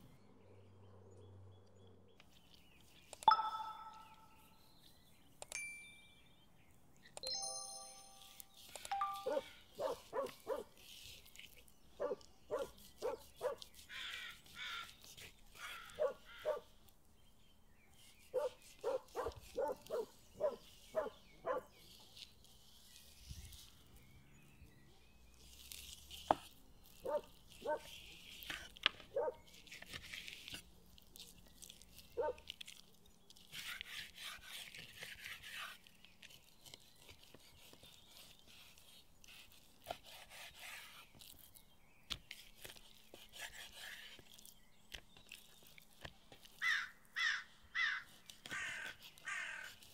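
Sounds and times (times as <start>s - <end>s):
animal barking calls: 9.0s - 10.7s, 12.0s - 14.9s, 15.6s - 16.7s, 18.3s - 21.7s, 27.0s - 28.0s, 29.1s - 29.4s, 32.2s - 32.5s
knife slicing meat on board: 33.3s - 36.3s, 37.0s - 41.3s, 42.1s - 44.5s.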